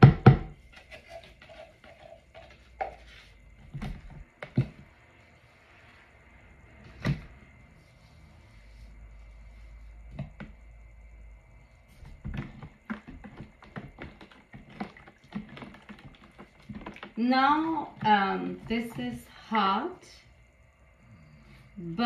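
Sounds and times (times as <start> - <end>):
spoon stirring in plastic pitcher: 0.6 - 4.9, 12.0 - 19.4.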